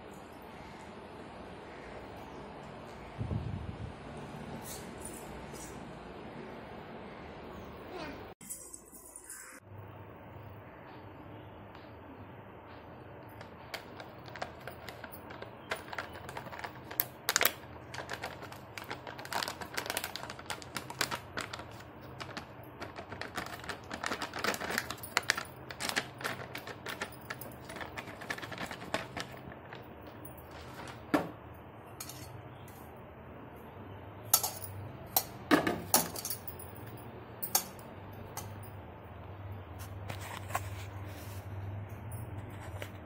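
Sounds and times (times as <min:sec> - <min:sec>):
plastic pouch crinkling: 0:13.8 - 0:30.8.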